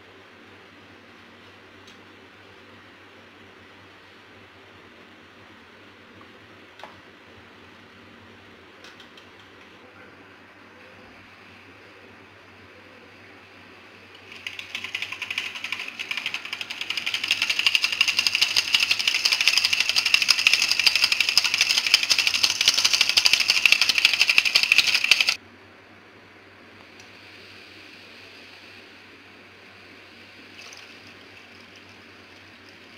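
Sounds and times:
hand mixer beaters clattering in bowl: 14.3s - 25.4s.

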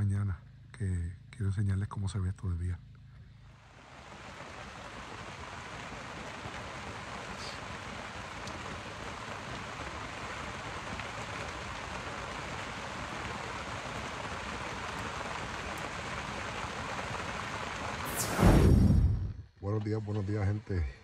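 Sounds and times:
heavy rain falling: 3.6s - 18.6s.

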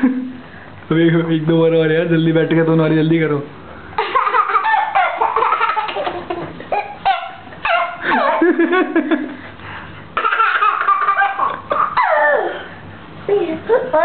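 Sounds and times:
people laughing: 8.0s - 9.4s.

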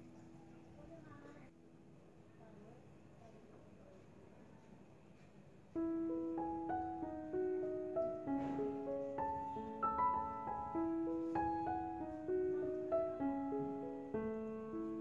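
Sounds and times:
piano music: 5.8s - 15.0s.

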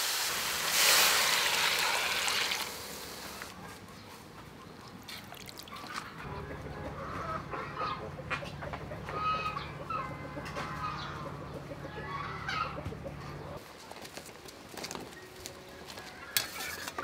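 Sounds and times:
chickens clucking: 3.5s - 13.7s.

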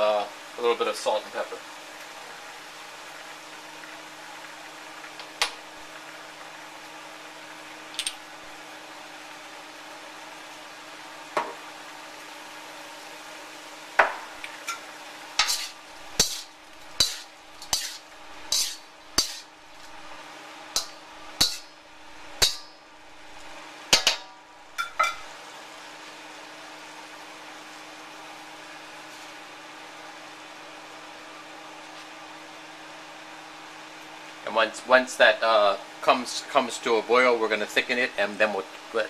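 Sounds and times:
steady background hum: 0.0s - 39.0s
spatula scraping a wok: 15.4s - 20.1s, 20.8s - 22.6s.

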